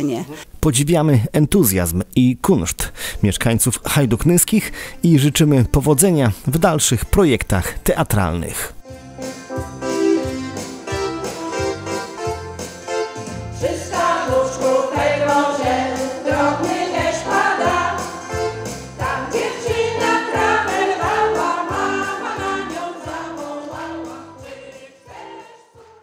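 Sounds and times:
electronic keyboard with beat: 0:08.8 - 0:14.2
women's choir singing: 0:13.6 - 0:26.0.

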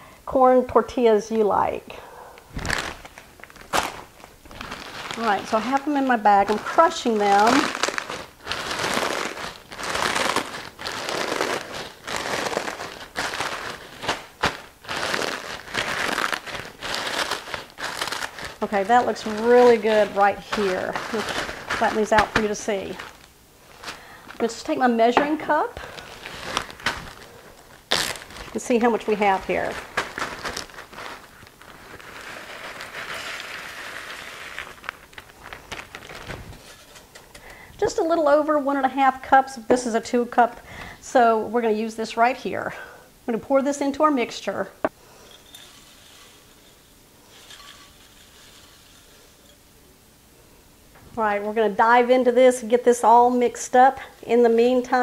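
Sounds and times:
plastic bag crinkling: 0:02.5 - 0:37.4, 0:45.1 - 0:49.6
chips crunching: 0:02.6 - 0:24.2.

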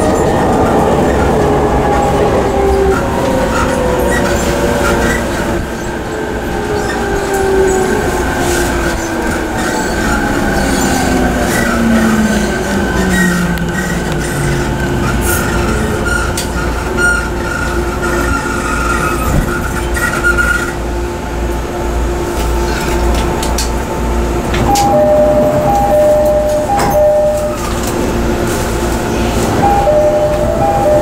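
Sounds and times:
electric train running rumble: 0:00.0 - 0:31.0
two-note electronic tone: 0:24.6 - 0:27.9, 0:29.6 - 0:31.0.

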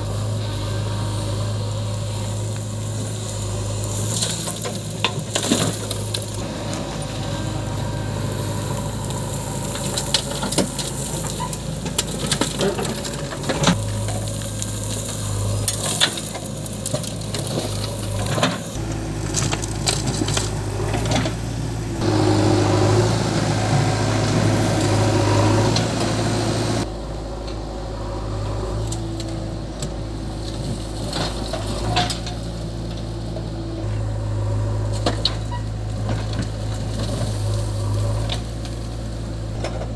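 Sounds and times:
diesel engine running: 0:00.0 - 0:39.9
soil and stones clattering on trolley: 0:02.1 - 0:22.2, 0:29.2 - 0:34.1, 0:34.8 - 0:39.9.

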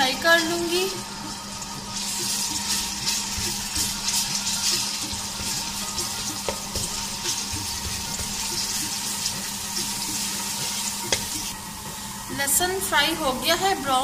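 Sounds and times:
garlic sizzling in hot oil: 0:00.0 - 0:14.0.

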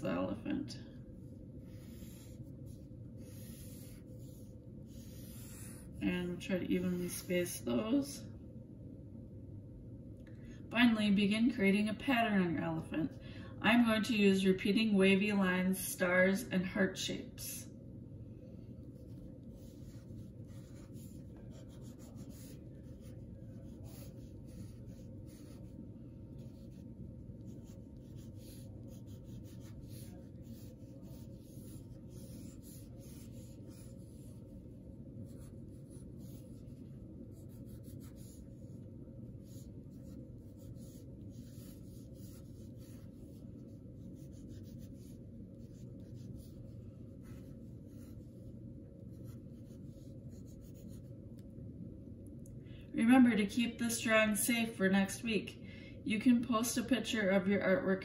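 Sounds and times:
steady low hum: 0:00.0 - 0:58.0
pencil scratching on paper: 0:01.2 - 0:07.3, 0:18.8 - 0:51.1.

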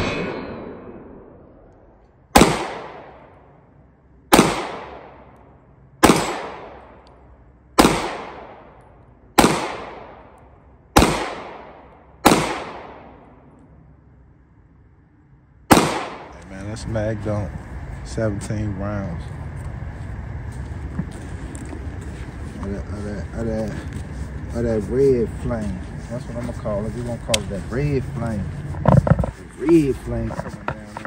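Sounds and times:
pistol shots with echo: 0:02.3 - 0:03.4, 0:04.3 - 0:05.4, 0:06.0 - 0:07.0, 0:07.8 - 0:13.3, 0:15.7 - 0:16.4.

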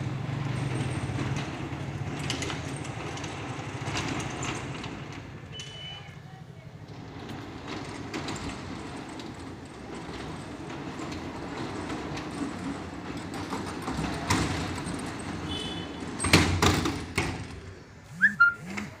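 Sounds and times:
sliding gate rolling on track: 0:00.0 - 0:19.0
gate knocking shut: 0:16.0 - 0:17.6
short sharp sounds: 0:18.0 - 0:19.0.

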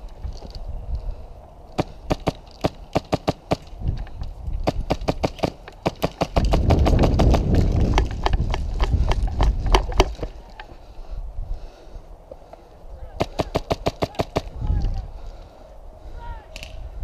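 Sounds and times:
airsoft gunfire clicks and pops: 0:01.8 - 0:10.3
pellets cracking against wood: 0:01.8 - 0:10.8
rumble of running and handling: 0:06.0 - 0:10.8.

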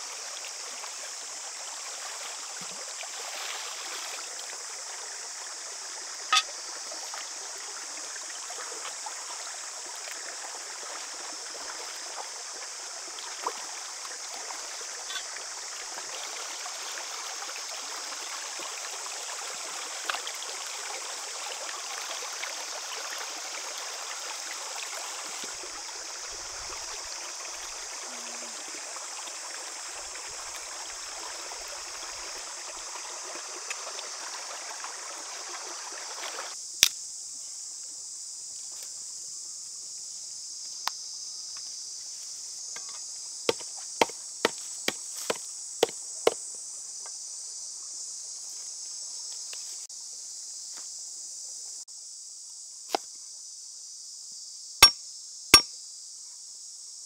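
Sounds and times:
stream running over rocks: 0:00.0 - 0:36.6, 0:42.6 - 0:47.0.

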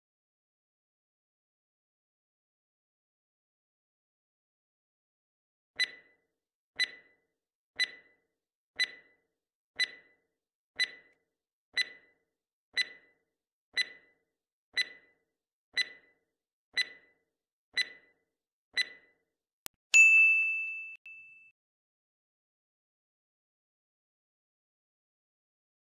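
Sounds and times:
timer ticking: 0:05.8 - 0:06.2, 0:06.8 - 0:07.2, 0:07.8 - 0:11.2, 0:11.8 - 0:19.2
bright ding: 0:20.0 - 0:21.5.

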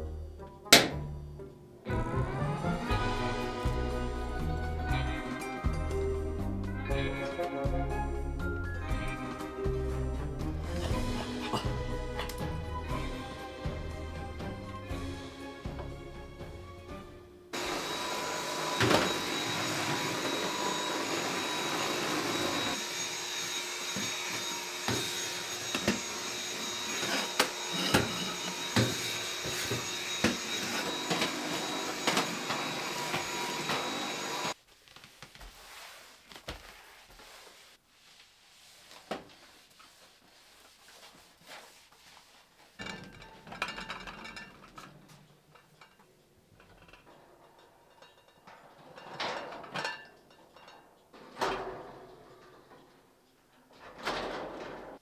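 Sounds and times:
vacuum cleaner whining: 0:01.9 - 0:34.6.

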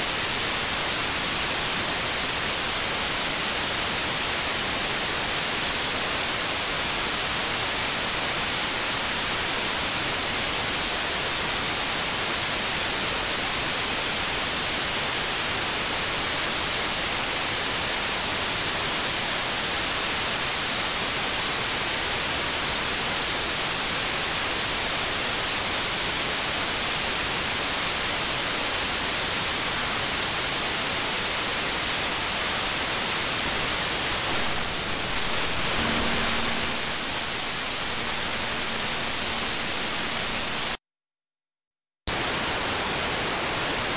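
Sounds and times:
radio static hiss: 0:33.3 - 0:40.8, 0:42.1 - 0:43.9.

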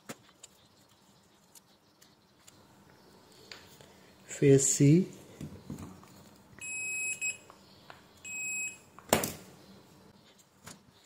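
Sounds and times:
multimeter high beeps: 0:06.6 - 0:07.5, 0:08.2 - 0:08.9.

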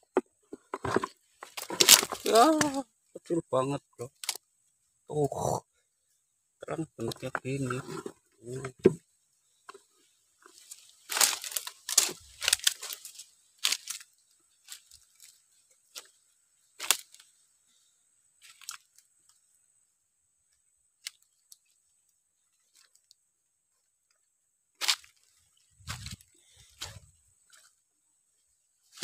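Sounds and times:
dry leaves rustling and crunching: 0:00.9 - 0:02.8, 0:10.4 - 0:16.2, 0:16.8 - 0:17.3, 0:18.4 - 0:19.0, 0:24.8 - 0:27.7
sharp crackle: 0:01.4 - 0:02.8, 0:04.0 - 0:04.5, 0:09.7 - 0:17.4, 0:24.8 - 0:27.7.

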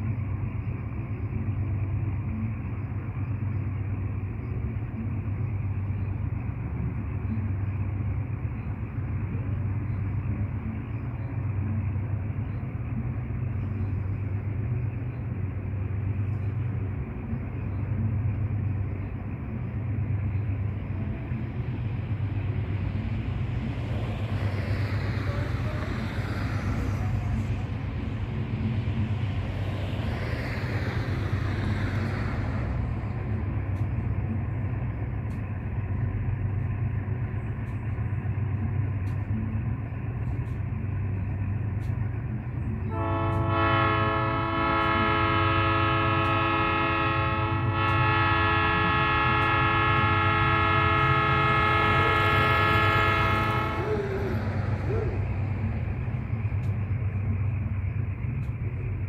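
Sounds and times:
diesel locomotive drone: 0:00.0 - 0:59.0
rushing noise: 0:11.4 - 0:38.7, 0:46.0 - 0:59.0.

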